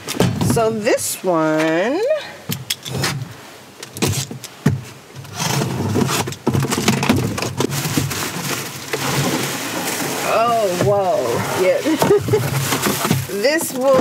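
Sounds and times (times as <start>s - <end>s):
cardboard and tape scraping: 3.9s - 14.0s.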